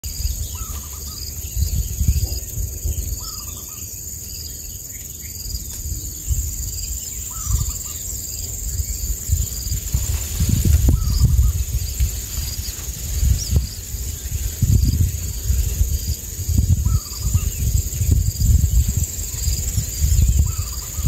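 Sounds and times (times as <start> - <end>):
bird chirp: 0.0 - 9.7, 16.8 - 19.0
crickets droning: 0.0 - 21.0
wind rumbling on microphone: 0.0 - 21.0.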